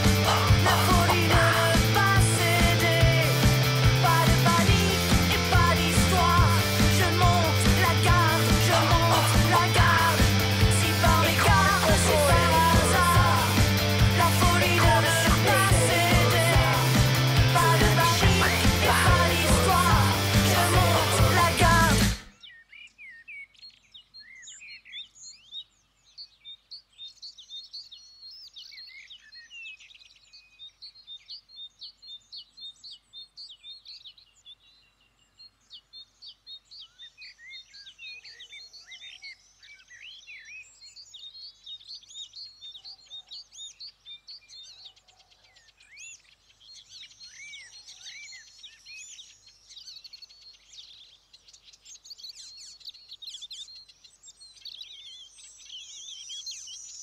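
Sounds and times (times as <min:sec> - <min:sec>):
birds chirping and singing: 0:00.0 - 0:57.0.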